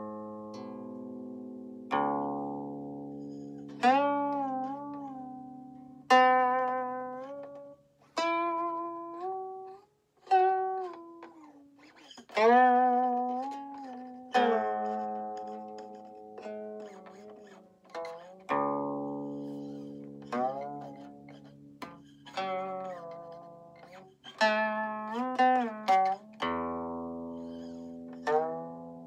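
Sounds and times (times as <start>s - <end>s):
guqin notes plucked and sliding: 0.0s - 29.0s.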